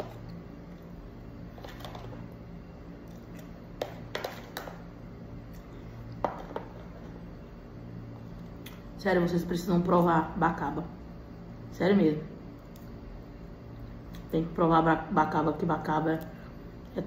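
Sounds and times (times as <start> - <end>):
low steady hum: 0.0 - 17.0
plastic spoon scraping plastic tub: 1.5 - 2.2.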